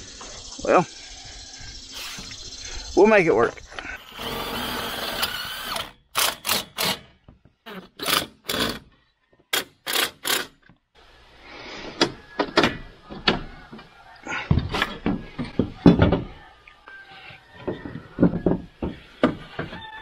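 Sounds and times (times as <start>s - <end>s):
sharp knocks and clunks: 17.6s - 19.8s.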